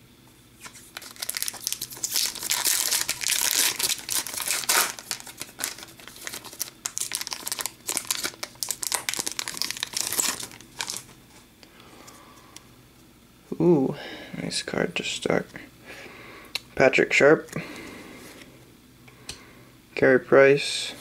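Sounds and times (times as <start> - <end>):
foil wrapper crinkling: 0.6 - 11.2.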